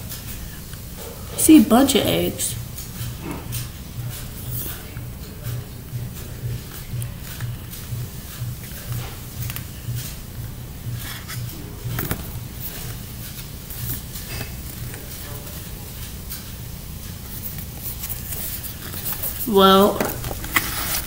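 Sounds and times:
low pulsing hum: 0:02.5 - 0:21.0
cardboard package clicks and rustles: 0:17.3 - 0:21.0.

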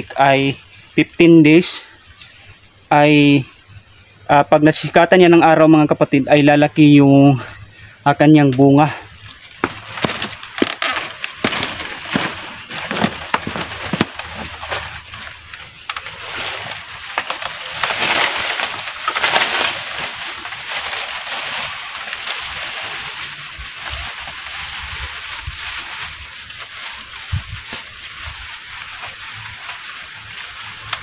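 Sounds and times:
plastic bag crinkling: 0:09.4 - 0:31.0
bamboo ladder knocking and creaking: 0:09.5 - 0:21.2.

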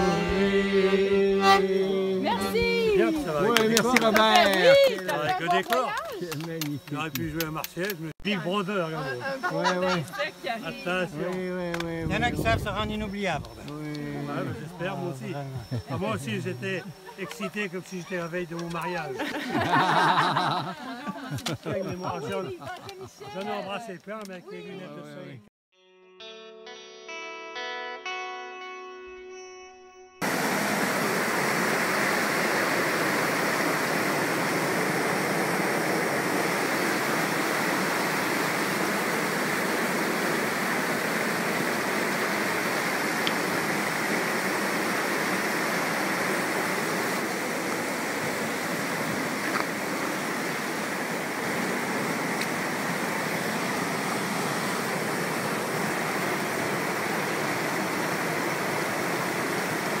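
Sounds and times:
waterfall rushing: 0:10.2 - 0:20.9, 0:30.2 - 1:00.0.

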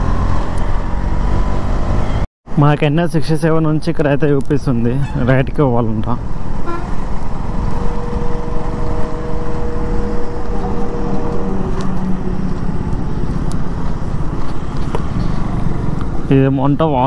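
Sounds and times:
motorcycle engine rumble: 0:06.0 - 0:17.0
wind rushing over microphone: 0:06.2 - 0:16.4
steady whine: 0:06.6 - 0:16.4.

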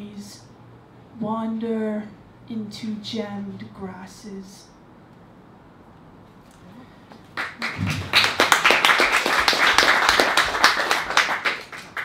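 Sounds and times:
audience clapping: 0:07.2 - 0:12.0.

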